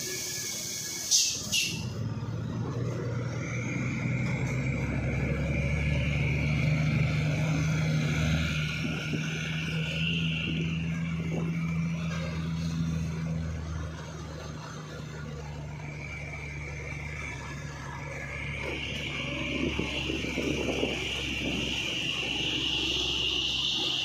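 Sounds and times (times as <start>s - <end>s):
air brake hisses: 0.0s - 1.9s
diesel engine pulling away: 0.0s - 24.0s.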